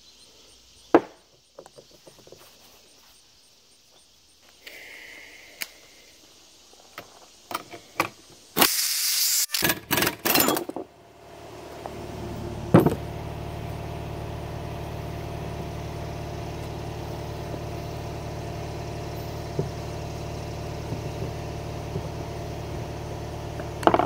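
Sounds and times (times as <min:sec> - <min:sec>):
steady motor hum: 0:10.8 - 0:24.0
light knocks on wooden bench: 0:12.7 - 0:13.0.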